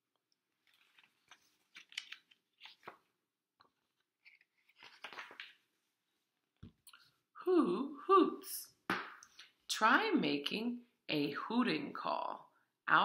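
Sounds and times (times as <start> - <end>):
book pages rustling: 0.4 - 7.1.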